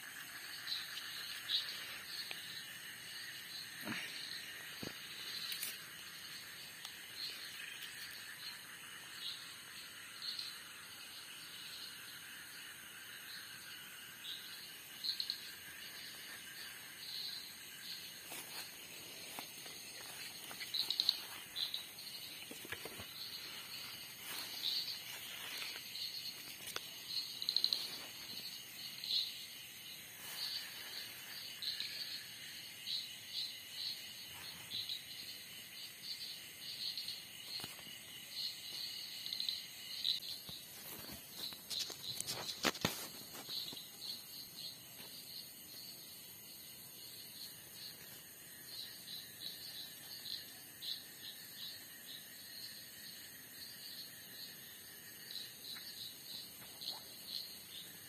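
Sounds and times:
crickets and insects chirping: 0:00.0 - 0:58.0
rustling in undergrowth: 0:17.9 - 0:28.6.

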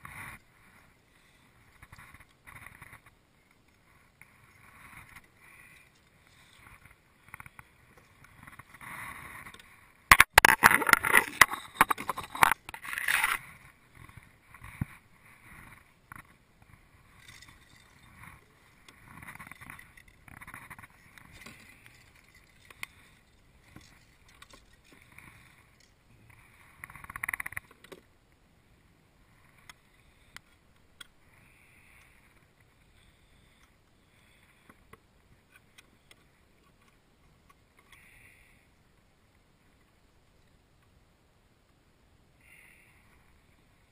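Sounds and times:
fish splashing and thrashing: 0:08.4 - 0:13.6.

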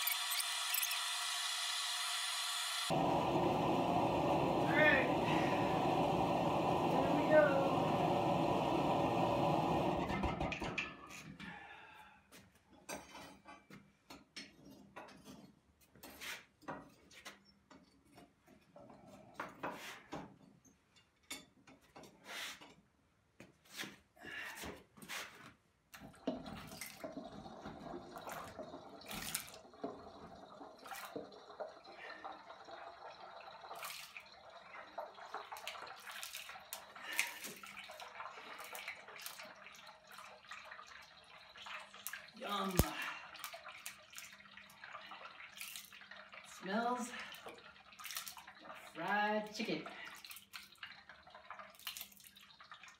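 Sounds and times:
hot metal sizzling in oil: 0:00.0 - 0:03.0.

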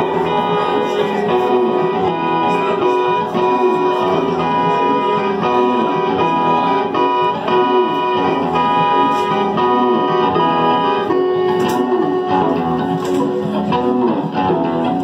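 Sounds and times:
electronic keyboard chords: 0:00.0 - 0:15.0.

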